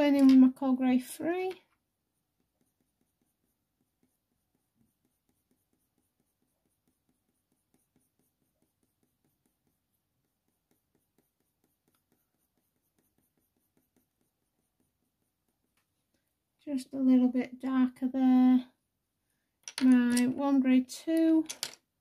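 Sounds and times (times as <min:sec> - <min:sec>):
coloured pencil scratching on paper: 0:00.0 - 0:15.9.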